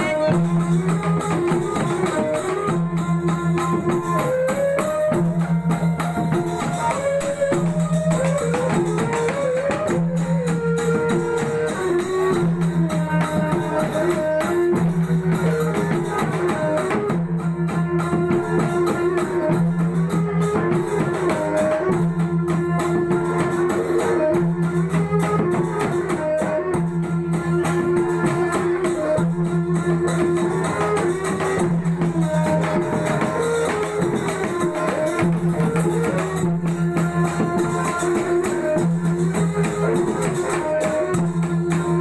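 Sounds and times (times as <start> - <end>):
jingling percussion: 0.0 - 42.0
violin melody: 0.0 - 42.0.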